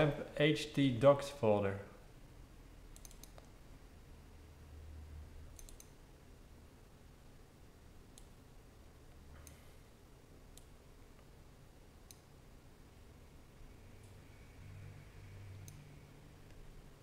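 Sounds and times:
computer mouse clicks: 2.9 - 3.6, 5.5 - 6.0, 9.3 - 9.7, 12.0 - 12.3, 15.5 - 16.7
low hum: 3.8 - 17.0.

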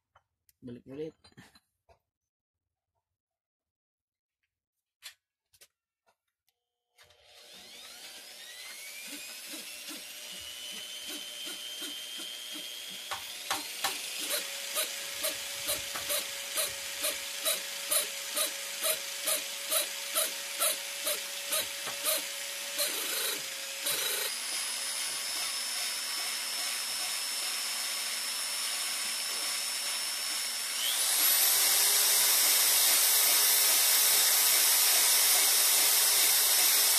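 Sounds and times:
electric drill whine: 7.0 - 36.9
valve grinding: 8.5 - 27.2.

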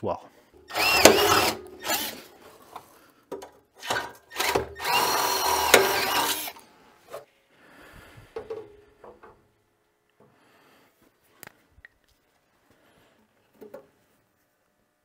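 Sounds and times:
cordless drill whine: 0.6 - 2.4, 3.8 - 6.6.

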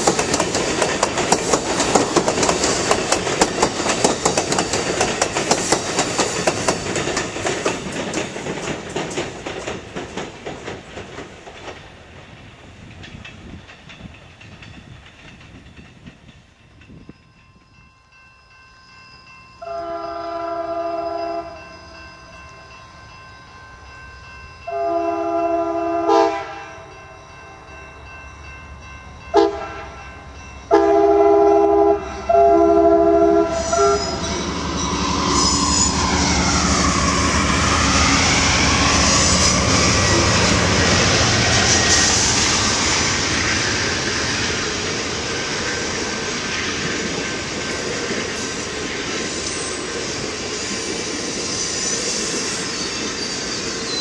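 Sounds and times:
train wheels clicking over rail joints: 0.0 - 17.7, 33.5 - 54.0
locomotive air horn blasts: 19.6 - 21.6, 24.7 - 26.9, 29.3 - 30.0, 30.7 - 34.3.

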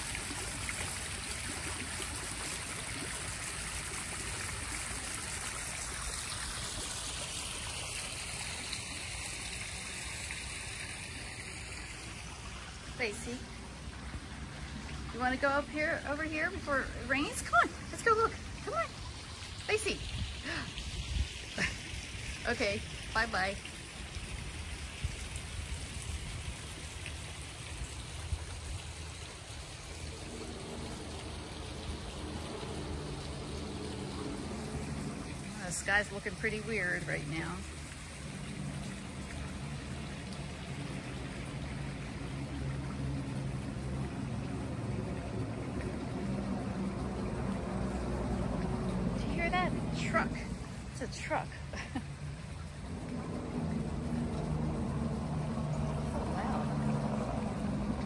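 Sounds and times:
waterfall splashing over rocks: 0.0 - 58.0
low rumble: 41.7 - 58.0
faint low drone: 51.8 - 58.0.

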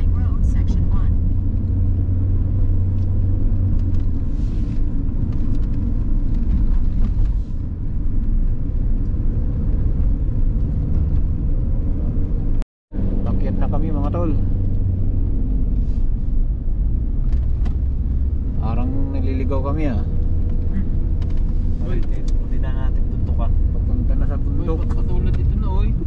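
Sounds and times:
car engine and road rumble: 0.0 - 26.0.

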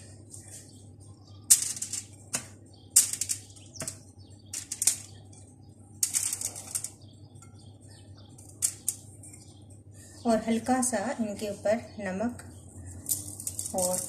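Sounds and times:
aluminium foil crinkling: 6.0 - 7.0, 12.9 - 14.0.

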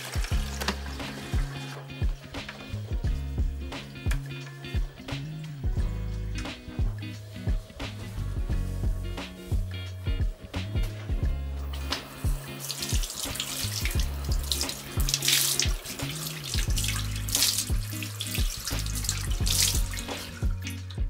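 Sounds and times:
water splashing on face: 0.0 - 1.8, 11.7 - 21.0
tap running into washbasin: 0.0 - 3.0, 11.7 - 21.0
background music with steady beat: 0.0 - 21.0.

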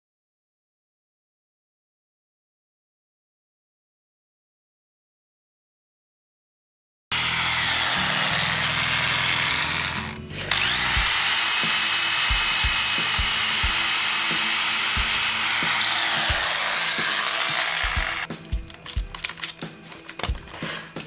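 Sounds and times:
electric drill boring into wood: 7.1 - 18.3.

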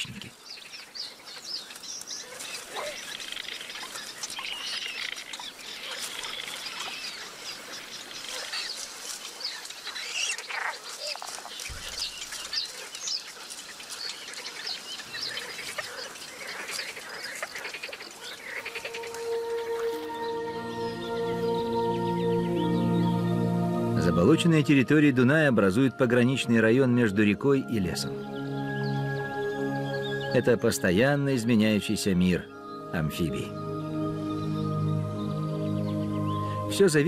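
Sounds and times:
bird chicks chirping and squeaking: 0.3 - 19.3.

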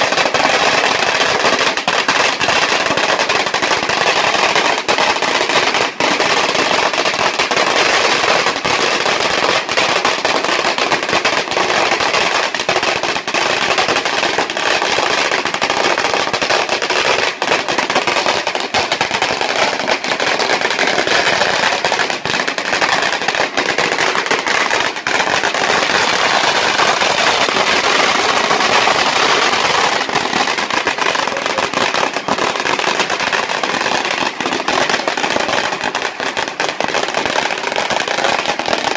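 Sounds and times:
firecrackers banging rapidly: 0.0 - 38.9.

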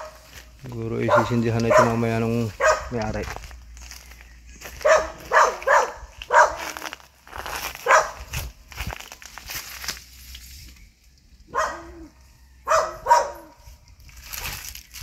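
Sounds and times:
dog barking: 0.0 - 0.2, 1.0 - 3.0, 4.8 - 6.8, 7.8 - 8.3, 11.5 - 13.6
dry crackling rustles: 0.0 - 11.8, 13.1 - 15.0.

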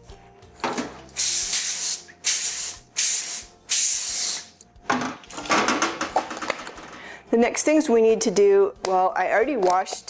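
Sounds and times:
aerosol can hissing: 1.0 - 4.6.

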